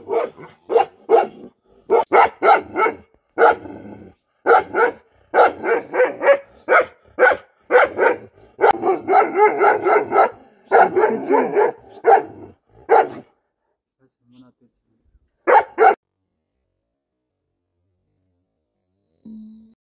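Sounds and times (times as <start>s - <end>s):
dog barking angrily: 0.0s - 13.3s, 15.4s - 16.0s.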